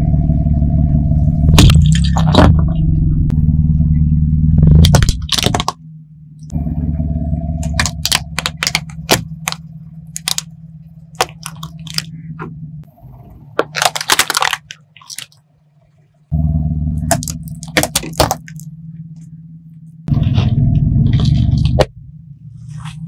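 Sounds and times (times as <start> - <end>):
car engine running: 0.0 - 23.0
plastic cracking under tyre: 4.8 - 5.8, 7.6 - 10.5, 11.2 - 12.1, 13.6 - 15.4, 17.0 - 18.6
plastic cup crunching: 4.8 - 5.8, 7.6 - 9.6, 10.2 - 10.5, 11.2 - 12.1, 13.6 - 15.4, 17.1 - 18.6.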